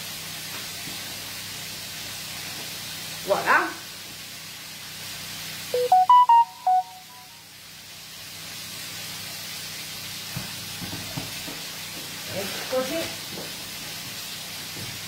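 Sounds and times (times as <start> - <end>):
food frying in a pan: 0.0 - 15.0
short electronic jingle: 5.8 - 7.3.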